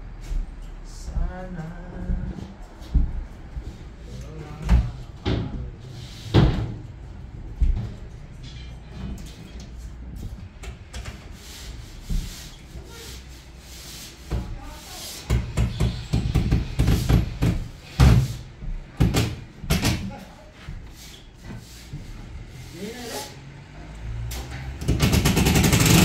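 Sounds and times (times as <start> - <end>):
knocks and thuds: 15.3 - 20.1.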